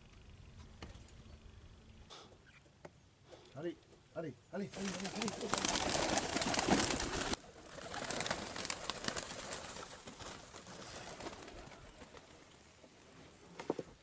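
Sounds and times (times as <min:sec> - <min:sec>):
pigeon wings clattering: 0:04.7 - 0:12.2.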